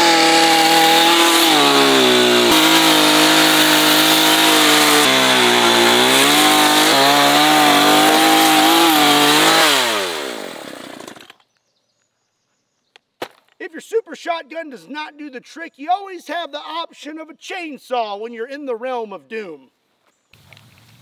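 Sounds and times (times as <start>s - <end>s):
chainsaw cutting: 0.0s - 11.4s.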